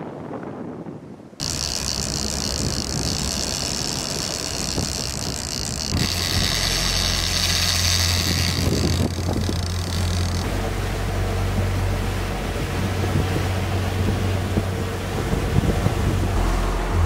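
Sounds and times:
wind on microphone: 0:00.0 - 0:10.5, 0:12.3 - 0:17.0
boat engines running: 0:01.4 - 0:17.0
water rushing from wake: 0:06.2 - 0:17.0.

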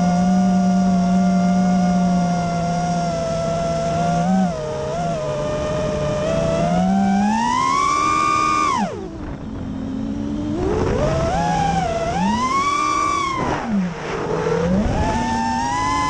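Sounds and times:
drone motors whining: 0:00.0 - 0:16.0.

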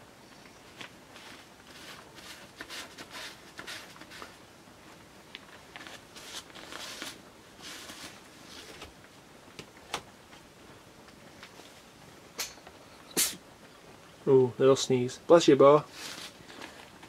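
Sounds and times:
bedding rustling: 0:00.6 - 0:12.1, 0:15.7 - 0:17.0
cat fur brushing against metal: 0:01.2 - 0:04.4.

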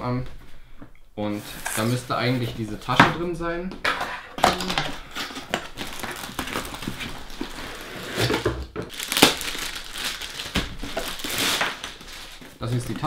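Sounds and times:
plastic wrapping crinkling: 0:04.4 - 0:13.0.

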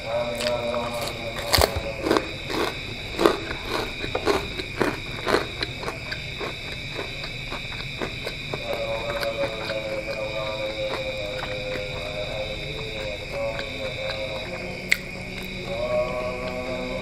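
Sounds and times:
cracker being chewed: 0:00.0 - 0:17.0.

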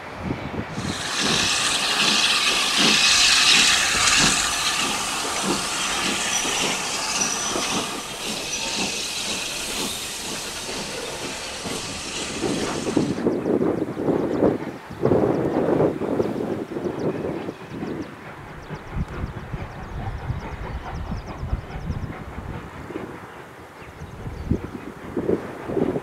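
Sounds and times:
locomotive steam hiss: 0:00.7 - 0:13.4.

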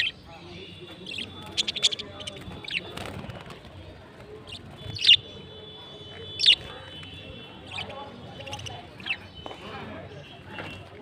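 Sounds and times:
budgerigars chirping: 0:00.0 - 0:03.1, 0:04.4 - 0:05.4, 0:06.2 - 0:09.4.

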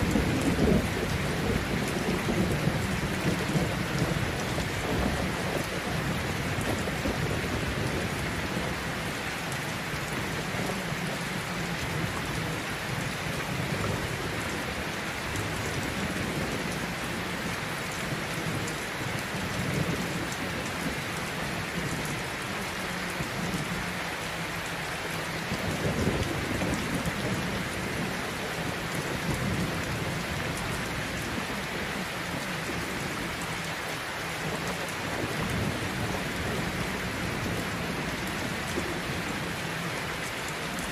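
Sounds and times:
thunder rumbling: 0:00.0 - 0:09.2, 0:25.5 - 0:33.4
heavy rain: 0:00.0 - 0:40.9.

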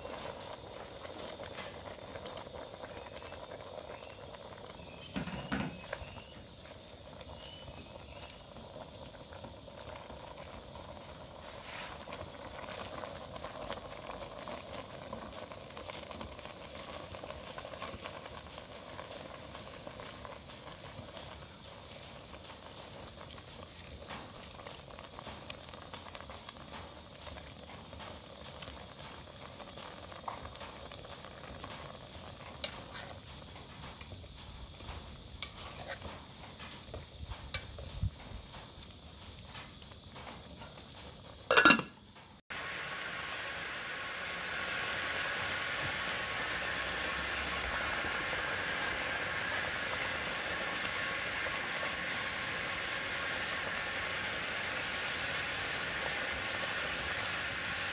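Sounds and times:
soup bubbling in a pot: 0:00.0 - 0:57.9
metal spoon clinking and scraping: 0:41.5 - 0:41.9.

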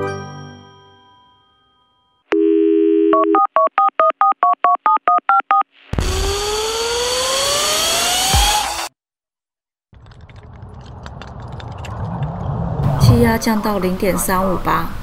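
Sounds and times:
telephone dial tone: 0:02.3 - 0:05.6
touch-tone keypad beeps: 0:03.1 - 0:05.6.

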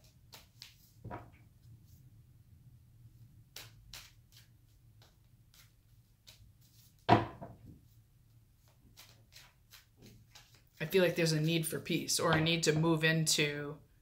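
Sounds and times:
knock on table: 0:07.1 - 0:07.6.

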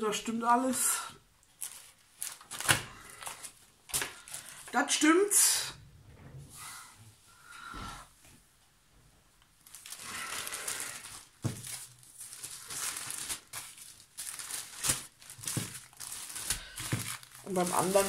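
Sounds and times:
plastic bags crinkling: 0:01.4 - 0:04.8, 0:09.6 - 0:18.0
packets tapping on table: 0:15.4 - 0:15.9, 0:16.8 - 0:17.2.

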